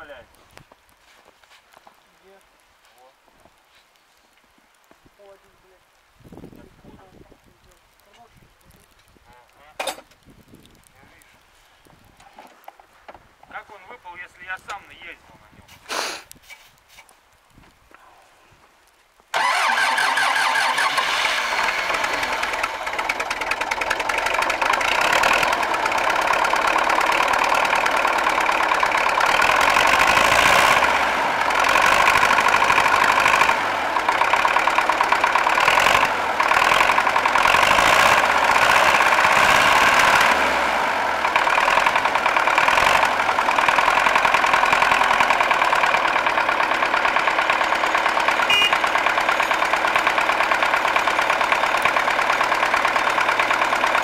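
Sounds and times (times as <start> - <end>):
diesel tractor engine starting and running: 19.3 - 54.0.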